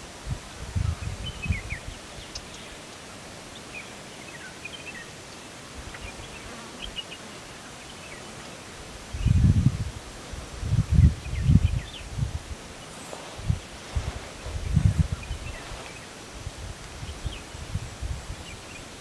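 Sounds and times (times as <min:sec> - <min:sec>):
forest ambience hiss: 0:00.0 - 0:19.0.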